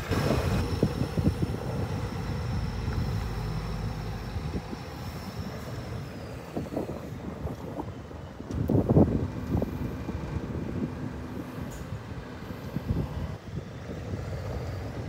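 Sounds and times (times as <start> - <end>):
truck diesel engine rumble: 0.0 - 15.0
wind buffeting microphone: 0.0 - 15.0.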